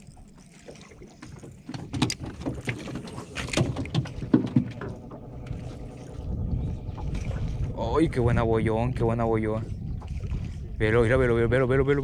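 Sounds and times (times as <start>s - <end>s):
splashy knocks on a boat: 1.5s - 5.1s.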